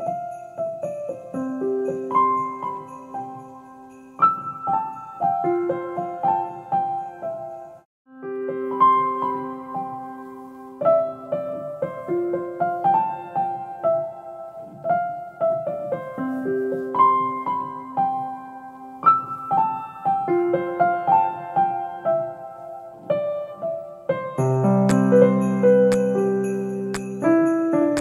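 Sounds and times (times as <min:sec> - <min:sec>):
piano music: 0:00.0 - 0:28.0.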